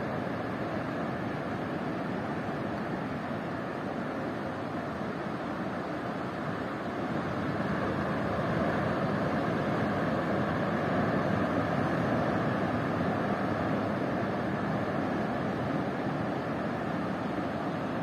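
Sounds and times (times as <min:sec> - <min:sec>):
ocean waves on beach: 0:00.0 - 0:18.0.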